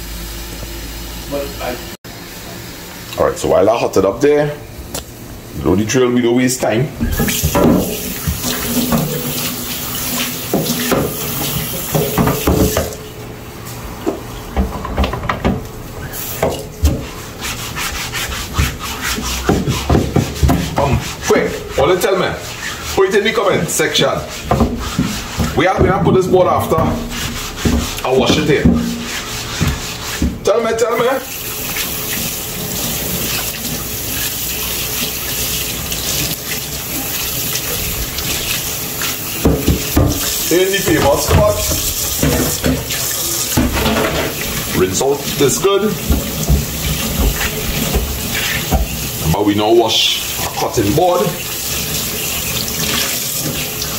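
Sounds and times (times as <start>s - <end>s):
cutting board scrubbing: 7.0s - 13.0s, 16.0s - 53.9s
tap running into sink: 7.0s - 13.0s, 14.0s - 15.7s, 16.4s - 17.1s, 24.4s - 30.4s, 31.5s - 49.4s.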